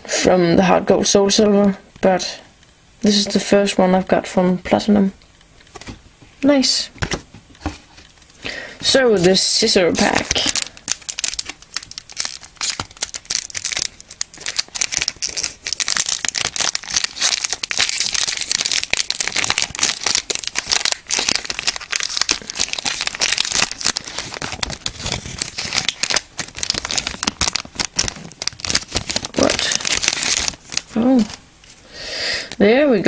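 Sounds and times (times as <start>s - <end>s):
foil wrapper crinkling: 9.2s - 31.4s.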